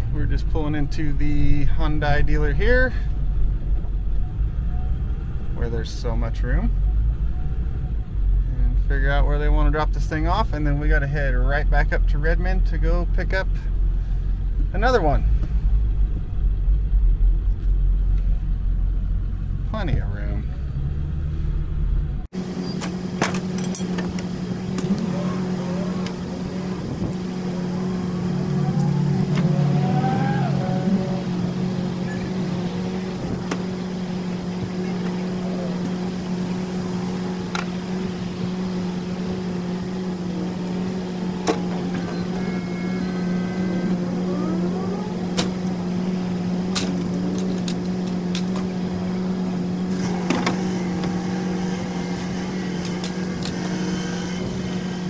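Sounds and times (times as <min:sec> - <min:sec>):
metal clanks and clicks: 0:22.8 - 0:25.0.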